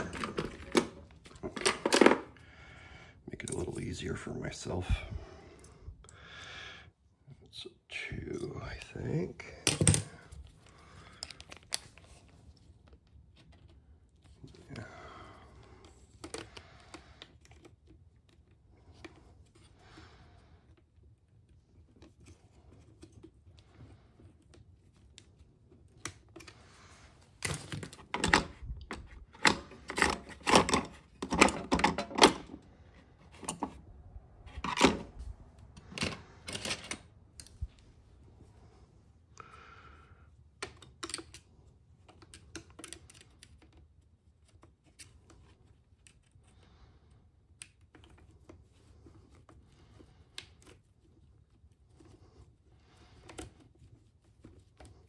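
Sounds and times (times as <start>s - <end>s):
tools and parts clicking: 0.0s - 2.4s, 9.6s - 10.3s, 27.4s - 32.6s, 35.8s - 37.6s, 40.6s - 41.5s.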